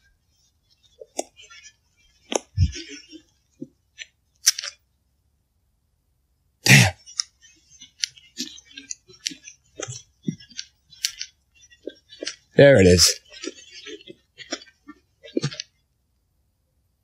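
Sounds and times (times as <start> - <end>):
person coughing: 6.6 - 7.1.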